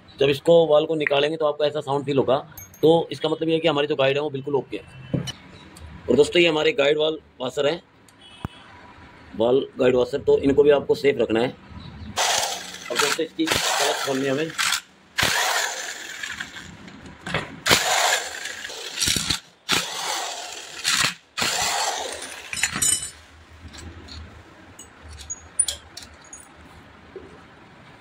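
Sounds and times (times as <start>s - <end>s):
metallic clinks of bolts and tools: 2.5s - 3.0s, 22.2s - 26.7s
impact driver running: 12.2s - 16.7s, 17.7s - 22.6s.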